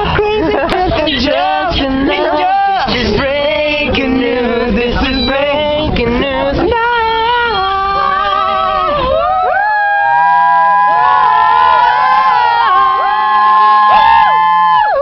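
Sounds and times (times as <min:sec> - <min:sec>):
group of people singing loudly: 0:00.0 - 0:10.2.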